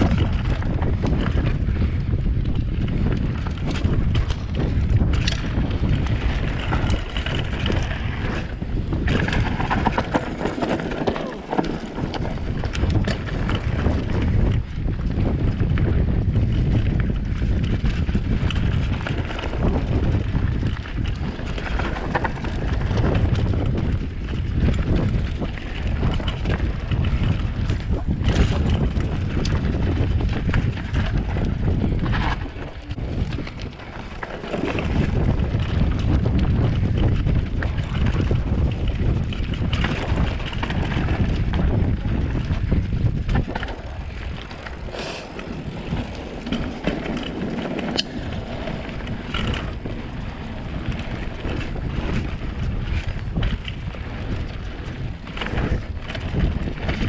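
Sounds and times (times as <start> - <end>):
bike rattling: 0.0 - 57.0
wind rushing over microphone: 0.0 - 57.0
tyres rolling over gravel: 3.0 - 14.4, 24.6 - 57.0.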